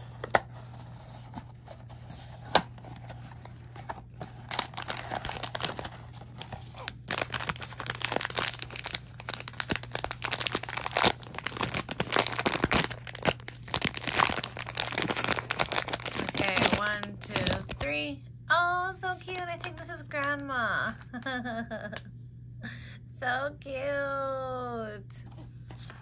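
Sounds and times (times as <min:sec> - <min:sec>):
packaging crinkling and tearing: 0:00.0 - 0:18.0, 0:19.2 - 0:20.4.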